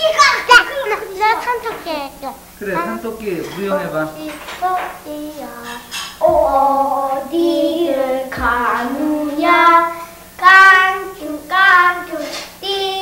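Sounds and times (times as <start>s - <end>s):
steady low hum: 0.0s - 13.0s
child singing: 4.1s - 13.0s.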